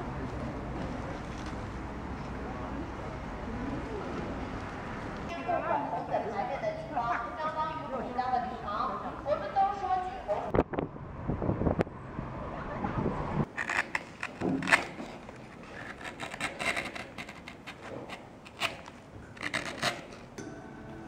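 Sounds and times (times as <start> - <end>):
carving gouge scraping wood: 13.5 - 20.4.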